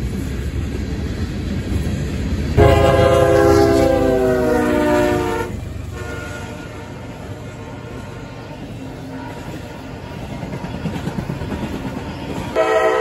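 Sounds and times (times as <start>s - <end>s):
freight train cars rolling: 0.0s - 13.0s
locomotive air horn: 2.6s - 8.4s, 12.6s - 13.0s.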